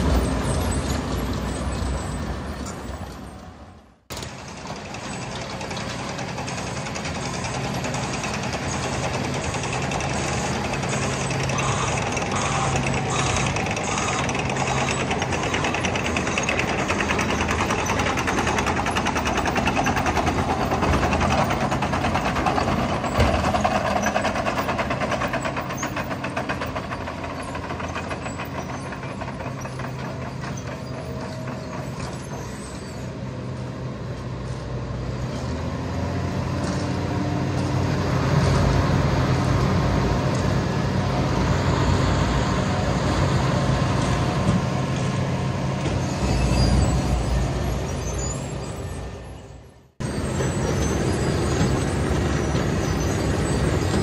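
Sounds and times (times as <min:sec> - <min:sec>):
diesel engine drone: 0:00.0 - 0:54.0.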